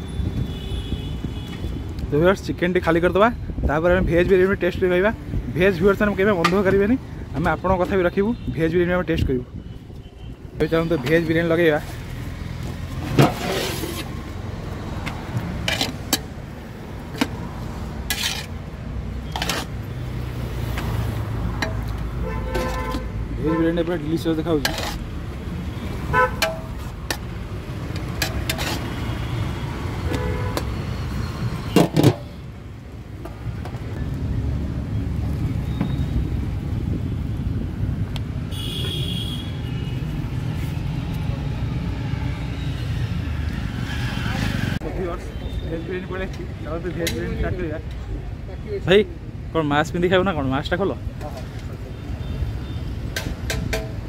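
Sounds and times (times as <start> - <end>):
traffic engine hum: 0.0 - 54.0
serving spoon scraping a pot: 13.2 - 14.1, 18.1 - 18.6, 24.6 - 25.1, 28.1 - 29.0.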